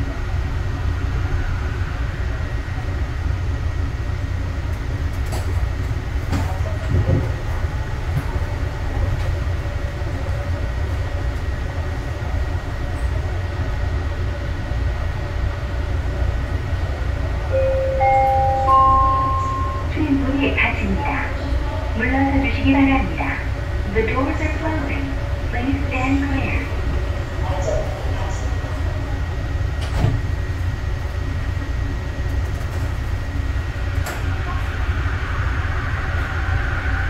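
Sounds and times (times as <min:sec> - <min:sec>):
low rumble inside train car: 0:00.0 - 0:37.0
three-note rising chime: 0:17.5 - 0:19.9.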